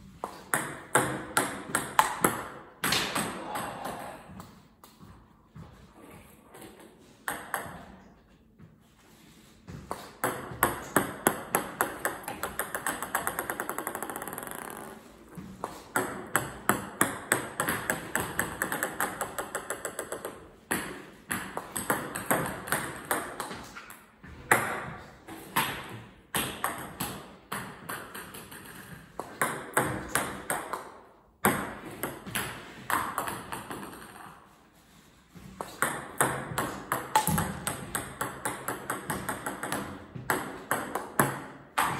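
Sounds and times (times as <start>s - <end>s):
table tennis ball bouncing on racket: 0.2s - 5.6s, 6.6s - 8.3s, 9.7s - 34.6s, 35.4s - 41.9s.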